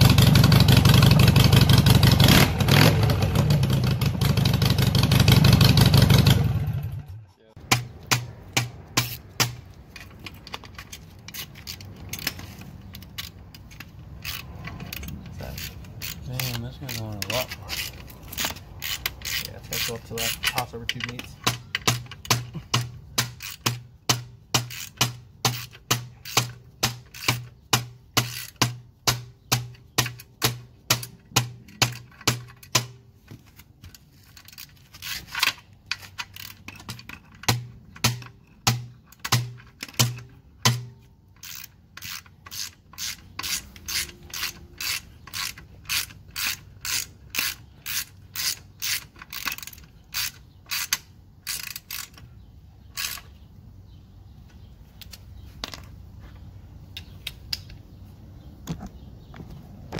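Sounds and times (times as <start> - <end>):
socket ratchet clicking: 7.7 - 32.9, 34.3 - 52.3, 52.9 - 53.4.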